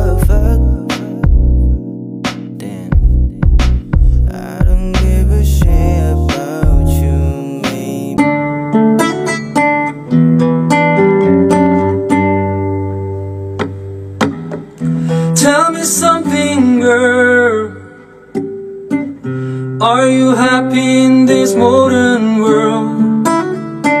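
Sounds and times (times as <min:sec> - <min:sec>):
man singing: 0:00.0 - 0:01.8, 0:02.5 - 0:08.5, 0:15.0 - 0:18.4, 0:19.8 - 0:23.4
classical guitar: 0:05.2 - 0:24.0.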